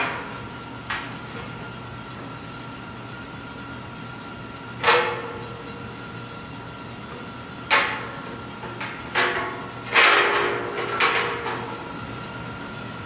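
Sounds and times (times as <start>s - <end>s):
metal clanks on hollow steel: 4.8s - 5.6s, 7.7s - 11.8s.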